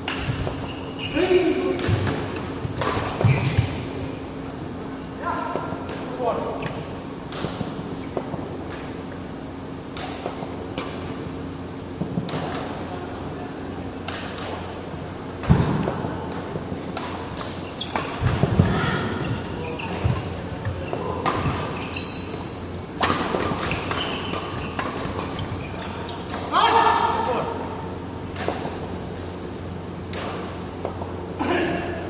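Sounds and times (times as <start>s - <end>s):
shoe squeaks on court: 0.5s - 1.4s, 3.0s - 3.8s, 17.6s - 18.2s, 19.1s - 22.7s, 23.6s - 26.3s.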